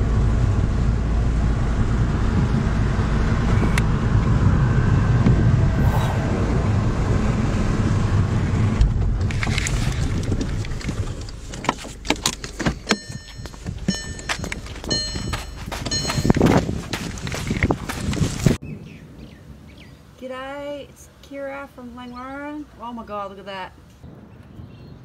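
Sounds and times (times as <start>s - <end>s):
car road noise in cabin: 0.0s - 18.6s.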